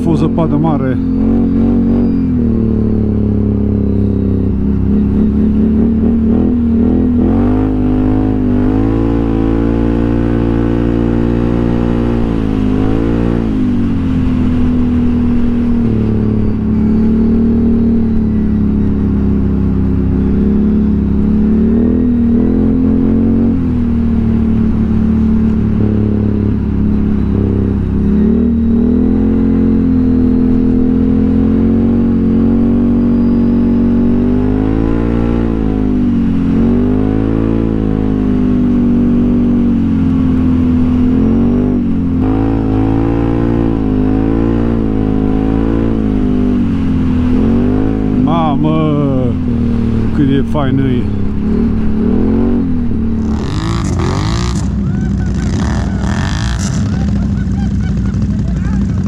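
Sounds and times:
atv engine revving: 0.0 - 59.0
steady low rumble: 33.9 - 59.0.

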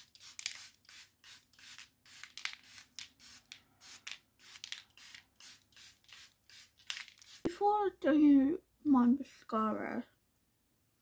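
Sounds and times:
spray bottle spritzes: 0.0 - 7.5.

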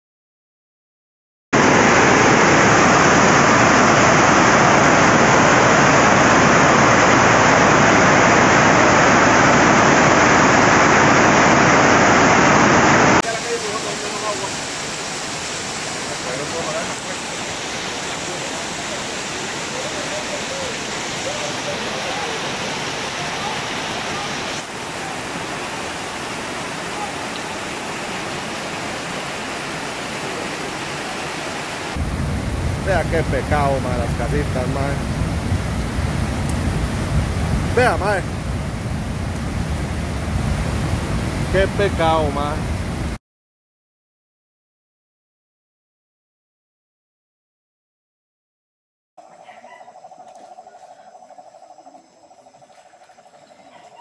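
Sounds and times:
floodwater rushing: 1.6 - 43.2.

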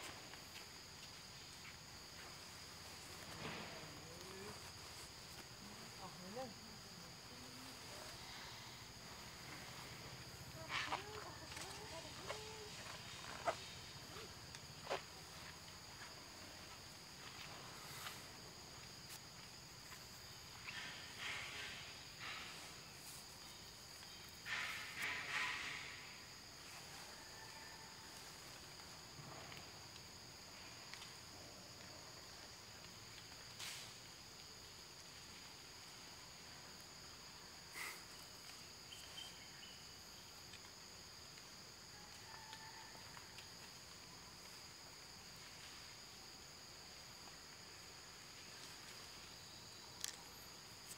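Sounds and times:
insects droning: 0.0 - 50.9
soft rustling hisses: 17.5 - 19.3.

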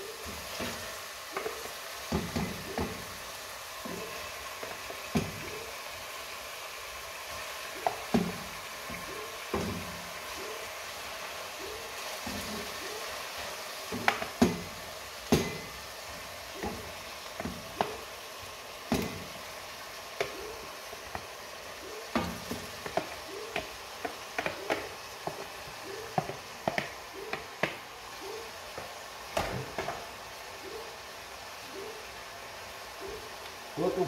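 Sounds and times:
faint frying sizzle: 0.0 - 34.0
wooden spoon knocking on containers: 1.4 - 3.1, 13.9 - 15.8, 16.5 - 18.1, 22.1 - 27.8, 28.7 - 30.1.

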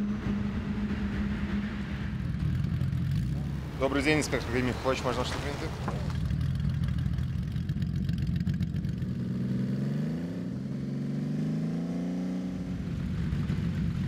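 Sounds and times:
motorcycle engine idling and revving: 0.0 - 14.0.

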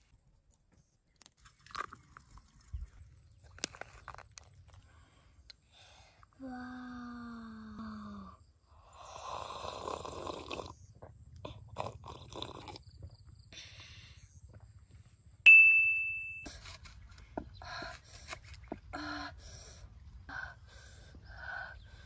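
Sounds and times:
child slurping water: 9.1 - 10.8, 11.4 - 12.9
bright ding: 15.5 - 16.5.

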